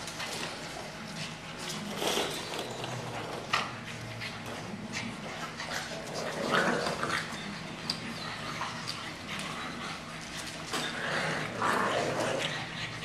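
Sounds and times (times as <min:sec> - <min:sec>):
puppies making play noises: 0:00.0 - 0:13.0.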